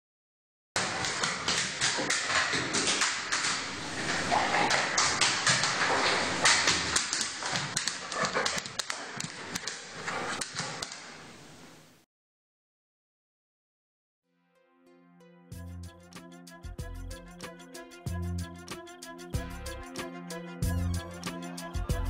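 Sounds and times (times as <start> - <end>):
dog claws clicking: 0.8 - 11.5
steady hiss: 3.5 - 7.0, 9.4 - 12.0.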